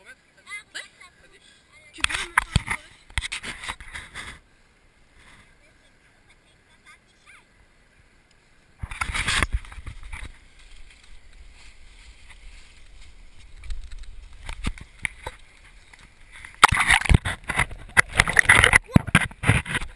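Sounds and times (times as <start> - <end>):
camera handling rustling and knocking: 2.0 - 4.3, 8.8 - 11.4, 13.4 - 19.9
water sloshing against camera: 8.8 - 19.9.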